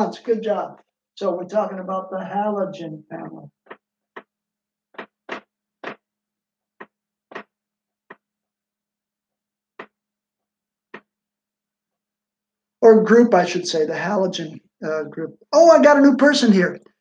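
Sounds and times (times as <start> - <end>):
marker writing on whiteboard: 5.0 - 6.1, 6.8 - 8.3, 10.9 - 11.2.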